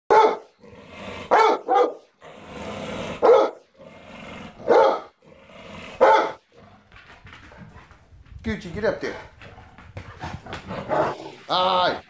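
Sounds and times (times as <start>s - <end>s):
dog yowling barks: 0.1s - 0.5s, 1.2s - 2.1s, 3.2s - 3.7s, 4.6s - 5.2s, 6.0s - 6.4s
dog growling: 0.6s - 1.4s, 2.2s - 6.9s, 10.2s - 12.0s.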